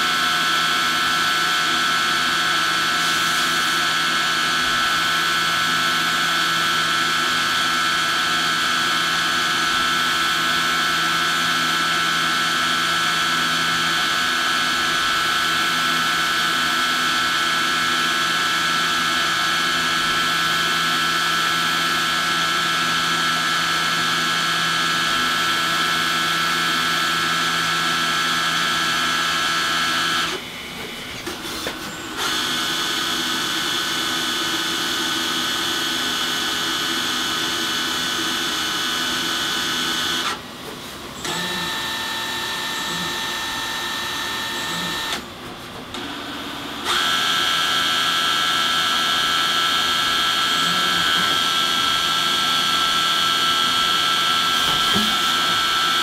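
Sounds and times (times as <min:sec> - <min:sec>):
lathe whining: 0:31.6 - 0:56.0.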